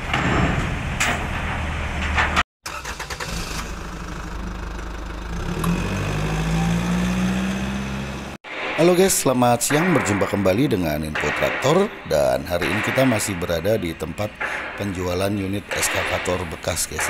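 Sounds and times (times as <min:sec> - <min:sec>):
diesel engine running: 0:00.0 - 0:08.4.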